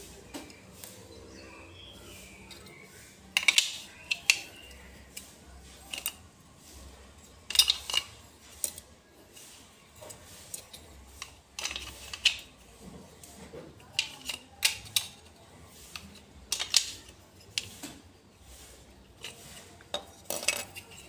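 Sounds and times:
hard plastic clicks and clacks: 0:02.5 - 0:05.3.

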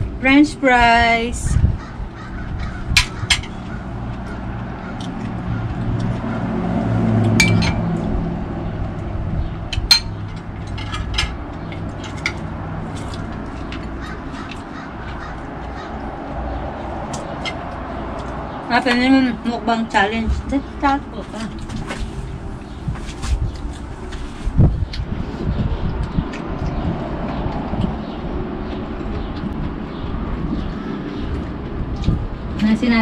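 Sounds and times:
utensils and dishes clinking: 0:07.3 - 0:08.0, 0:09.7 - 0:13.9.

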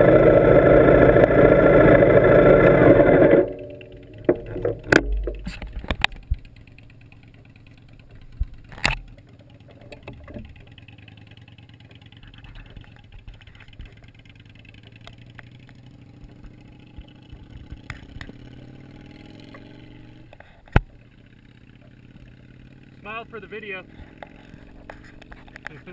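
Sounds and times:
motorcycle engine idling: 0:00.0 - 0:25.9
sharp knocks: 0:03.2 - 0:06.1.

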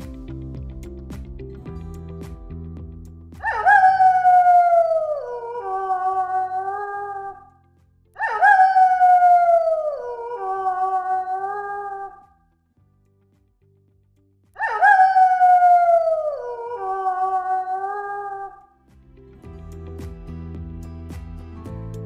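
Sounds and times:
wolf howling: 0:03.4 - 0:07.5, 0:08.2 - 0:12.2, 0:14.6 - 0:18.6.

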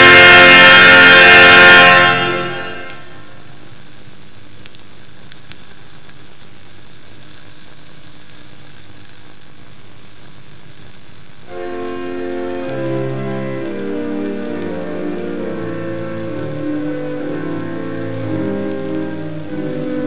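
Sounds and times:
pipe organ chords: 0:00.0 - 0:03.4, 0:11.5 - 0:20.0
vinyl record surface hiss: 0:00.0 - 0:20.0.

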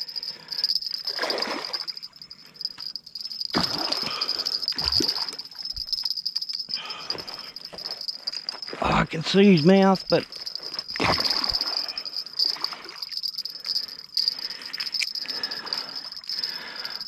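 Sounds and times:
crickets chirping: 0:00.0 - 0:17.0
fish splashing in water: 0:01.1 - 0:01.9, 0:03.6 - 0:05.5.

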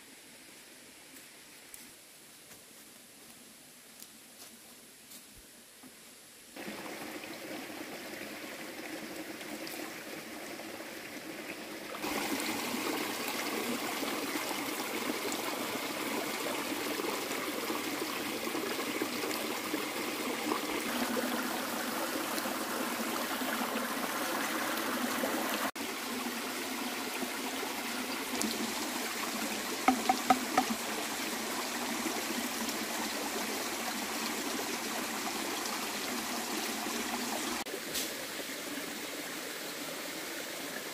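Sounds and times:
stream water trickling: 0:06.6 - 0:40.9
short sharp knocks: 0:29.9 - 0:30.8.

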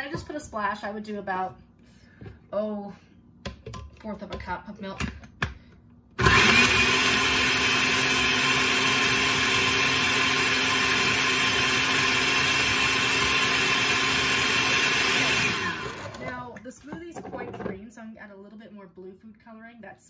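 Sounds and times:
blender running: 0:06.2 - 0:16.4.

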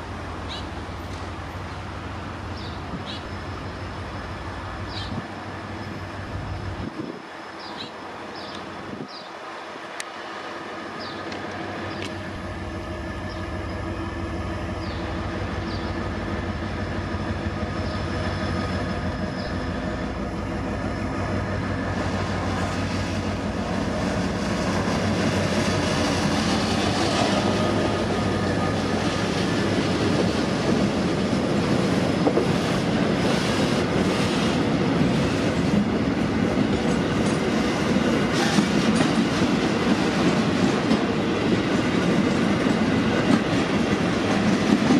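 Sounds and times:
diesel locomotive engine hum: 0:00.0 - 0:44.9
train wheels rumbling and clacking: 0:10.9 - 0:44.9.

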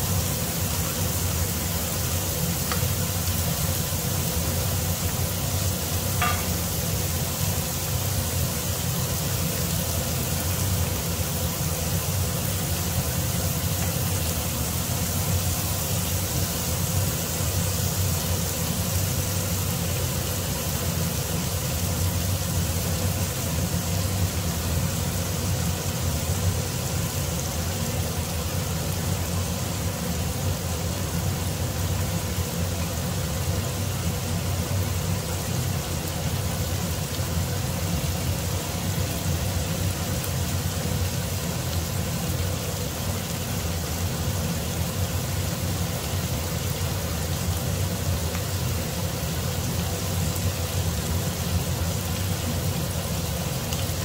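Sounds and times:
meat sizzling in a frying pan: 0:00.0 - 0:54.0
steady low hum: 0:00.0 - 0:54.0.

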